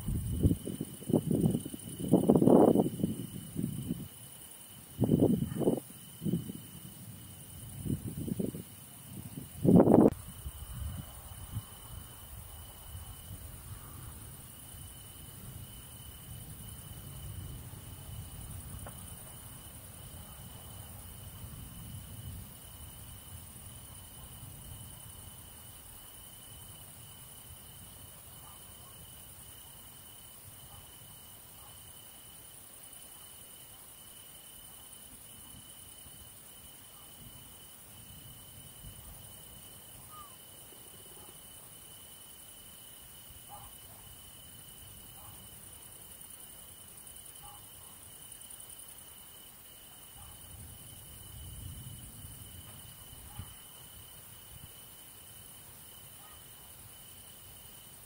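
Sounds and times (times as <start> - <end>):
crickets chirring: 0.0 - 58.0.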